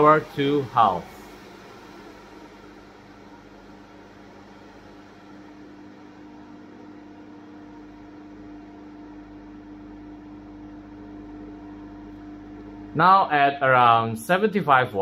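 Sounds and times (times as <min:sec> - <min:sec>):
rush of air: 0:00.0 - 0:06.6
duct fan humming: 0:00.0 - 0:15.0.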